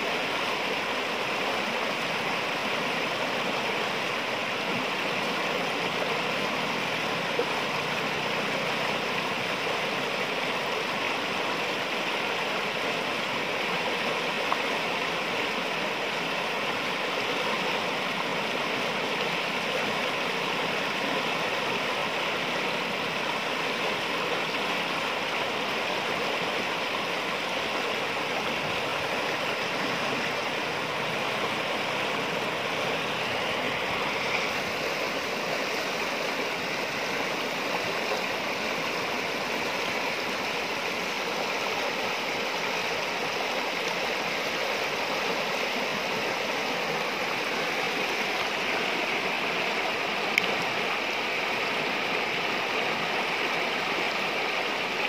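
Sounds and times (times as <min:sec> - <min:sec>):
river rapids roaring: 0:00.0 - 0:55.0.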